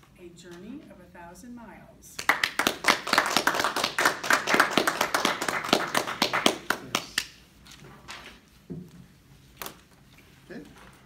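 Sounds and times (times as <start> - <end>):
small audience clapping: 2.2 - 7.4.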